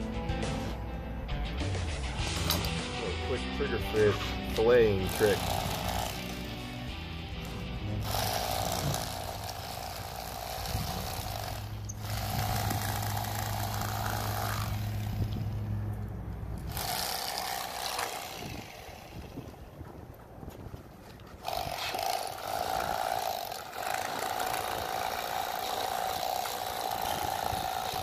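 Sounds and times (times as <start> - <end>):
electric knife buzzing: 4.2 - 19.5, 21.4 - 28.0.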